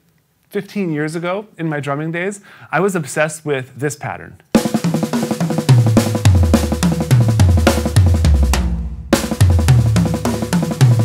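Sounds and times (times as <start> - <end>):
bass drum: 4.6 - 11.0
drum fill on snare and toms: 4.6 - 11.0.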